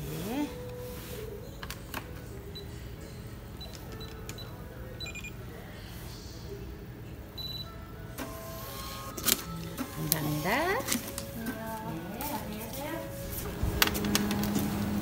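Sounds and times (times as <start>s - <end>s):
payment terminal beeps: 2.4s - 5.4s, 7.4s - 11.6s
receipt printing: 7.4s - 15.0s.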